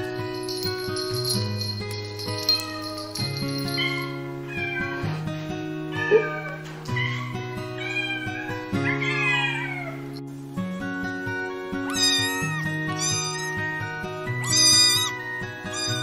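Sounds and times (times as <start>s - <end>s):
background music: 0.0s - 16.0s
cats meowing: 2.4s - 5.2s, 5.9s - 10.1s, 11.8s - 16.0s
kitten mewing: 11.9s - 13.6s, 14.4s - 16.0s.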